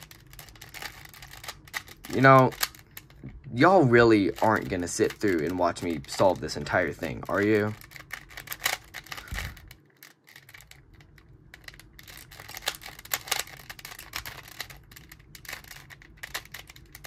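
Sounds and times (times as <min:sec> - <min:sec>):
puzzle cube plastic clicks: 0:00.0 - 0:17.0.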